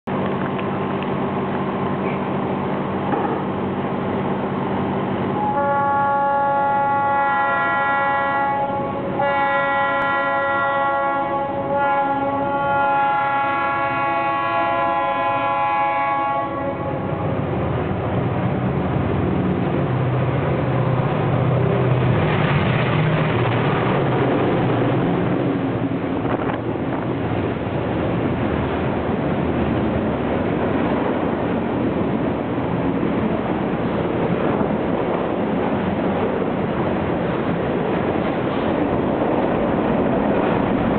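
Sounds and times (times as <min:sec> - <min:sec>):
diesel locomotives passing: 0:00.1 - 0:40.9
train horn blasts: 0:05.4 - 0:17.3
freight cars rumbling past: 0:13.1 - 0:40.9.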